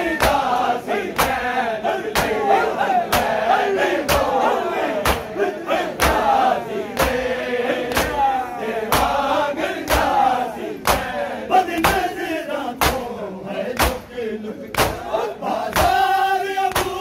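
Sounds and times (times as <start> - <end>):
men chanting a lament: 0.0 - 17.0
men slapping chests in unison: 0.0 - 17.0.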